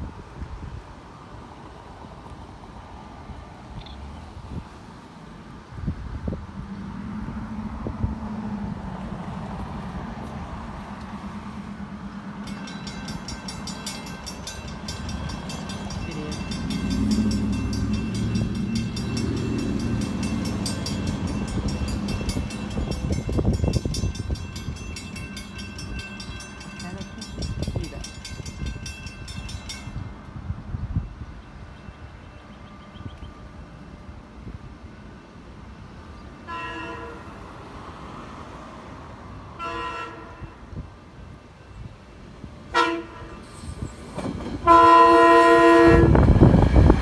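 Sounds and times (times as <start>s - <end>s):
crossing warning bell ringing: 11.6s - 34.0s.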